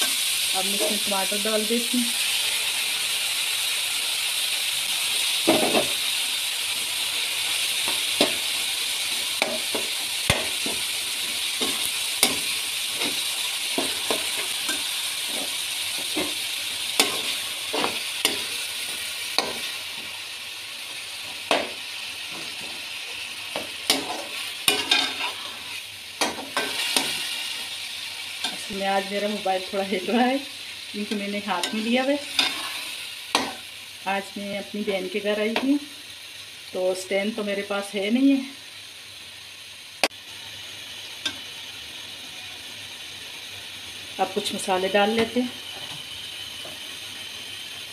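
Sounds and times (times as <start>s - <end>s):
meat sizzling in a pot: 0.0s - 47.9s
steel spoon scraping pot: 31.6s - 32.9s.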